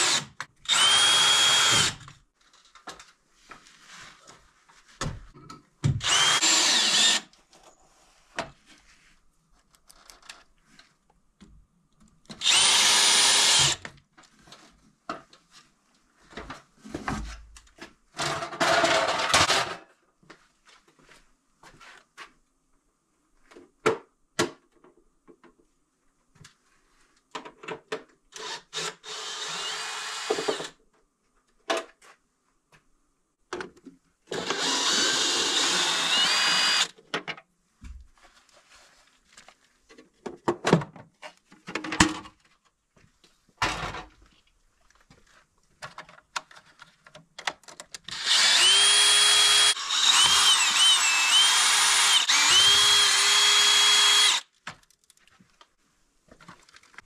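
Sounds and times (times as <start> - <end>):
cordless drill motor whine: 0.0 - 2.0, 6.0 - 7.2, 12.4 - 13.8, 28.4 - 30.6, 34.4 - 36.9, 48.1 - 54.5.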